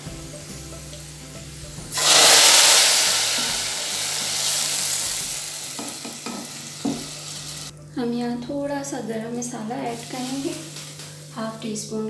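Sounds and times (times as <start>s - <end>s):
hot oil sizzling in a pot: 0.0s - 7.7s, 9.8s - 11.6s.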